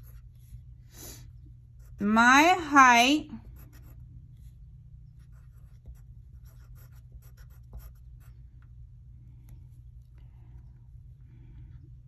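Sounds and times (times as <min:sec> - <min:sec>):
pencil scratching on paper: 0:00.0 - 0:00.6, 0:03.4 - 0:04.5, 0:05.2 - 0:08.3.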